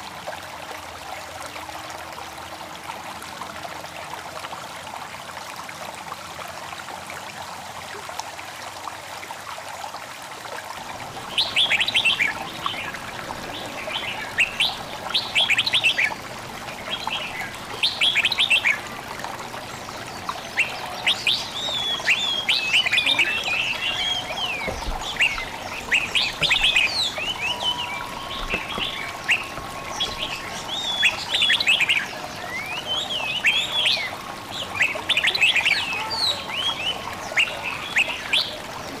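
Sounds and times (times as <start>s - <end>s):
babbling stream: 0.0s - 39.0s
songbirds chirping: 10.8s - 39.0s.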